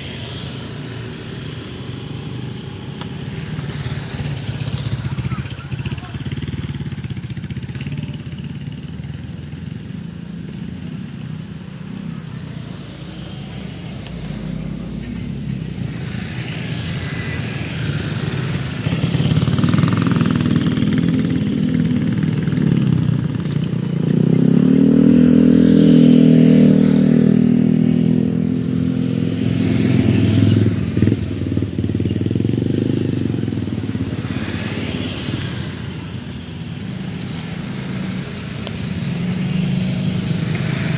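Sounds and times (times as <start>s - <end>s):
cars passing: 0.0s - 40.9s
motorcycles passing: 0.0s - 40.9s
engine speeding up: 11.4s - 36.3s.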